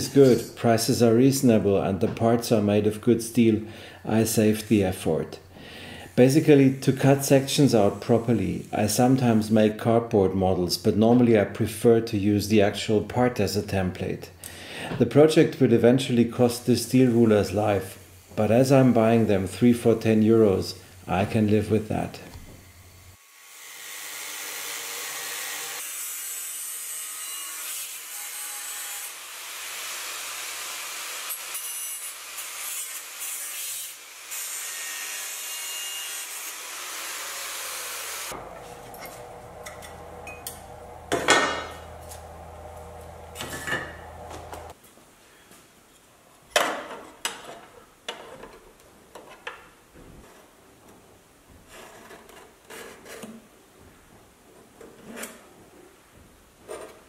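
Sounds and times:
angle grinder cutting steel: 0:23.2 - 0:44.8
metallic knocks and clinks: 0:38.4 - 0:44.7.

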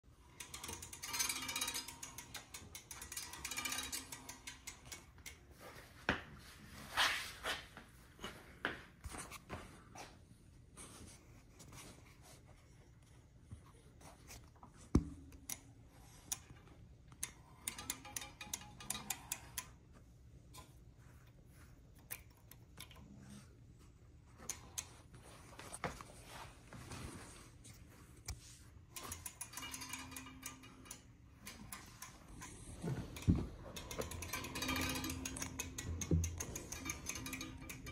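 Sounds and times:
ticks and clanks: 0:00.2 - 0:05.6, 0:16.3 - 0:19.8, 0:28.9 - 0:37.9.

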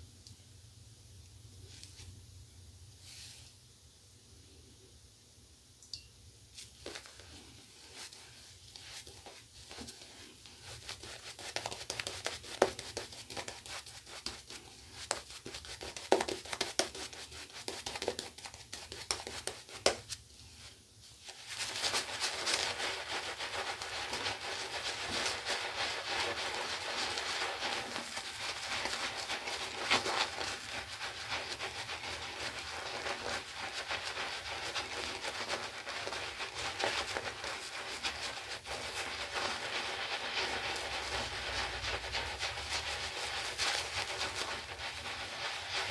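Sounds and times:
shaving brush lathering stubble: 0:21.5 - 0:45.9.

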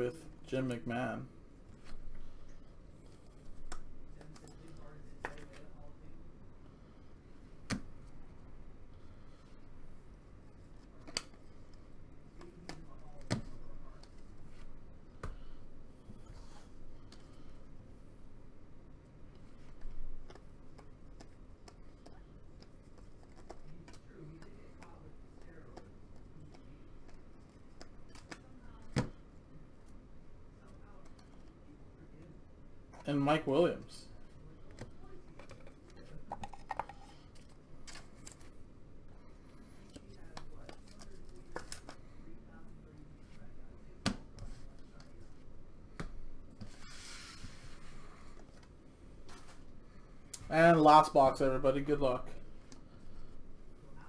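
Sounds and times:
cards clicking and tapping: 0:39.9 - 0:42.0.

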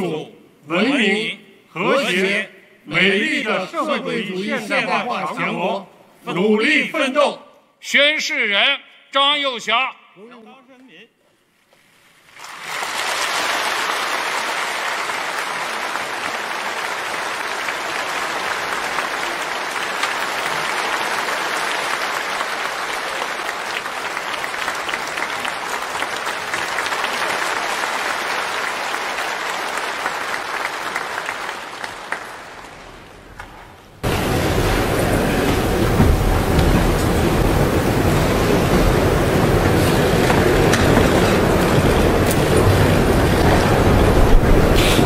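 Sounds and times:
audience applauding: 0:12.2 - 0:45.0.

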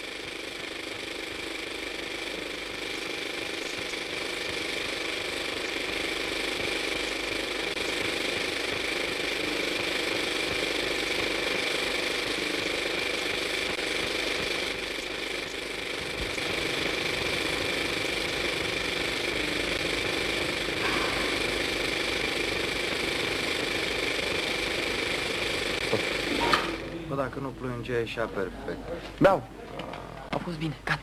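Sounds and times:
film camera whirring with whine: 0:00.0 - 0:31.0.

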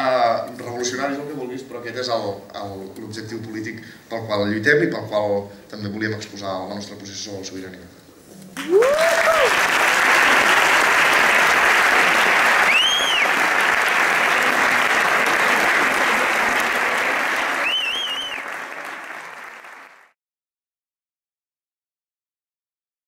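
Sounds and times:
audience applauding: 0:08.6 - 0:20.2
short high whistles: 0:12.6 - 0:13.4, 0:17.6 - 0:18.5.

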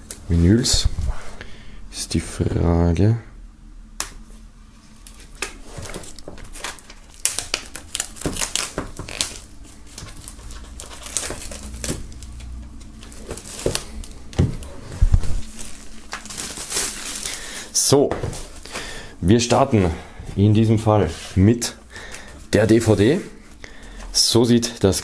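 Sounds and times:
plastic shrink-wrap crinkling and tearing: 0:05.0 - 0:18.8.

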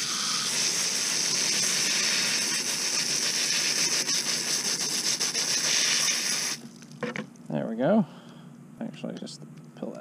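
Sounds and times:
hose spraying water: 0:00.0 - 0:06.7.

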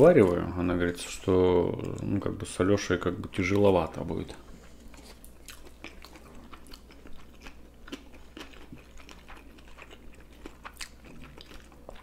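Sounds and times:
wet chewing mouth clicks: 0:05.0 - 0:12.0.

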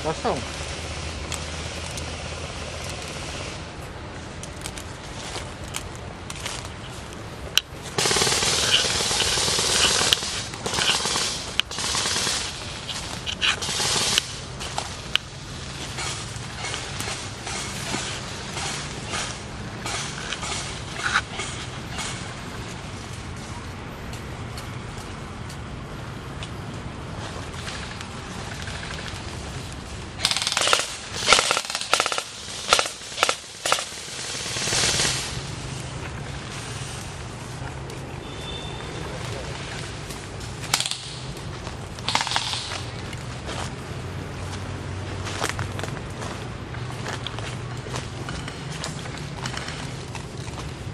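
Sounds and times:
airsoft rifles rapid fire: 0:07.9 - 0:14.9, 0:15.9 - 0:22.3, 0:30.2 - 0:35.5, 0:40.6 - 0:41.3, 0:42.0 - 0:43.0.

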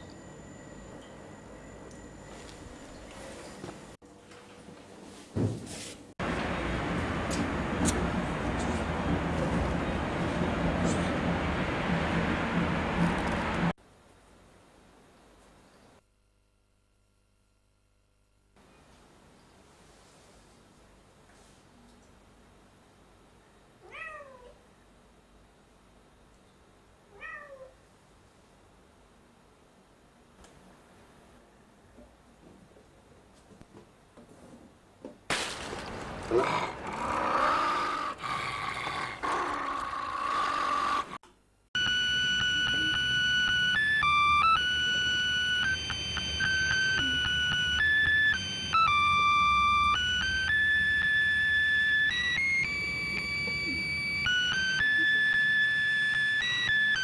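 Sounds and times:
cat meowing: 0:23.8 - 0:24.6, 0:27.1 - 0:27.8
animal roar: 0:36.2 - 0:41.2
electronic beeping melody: 0:41.8 - 0:57.0.

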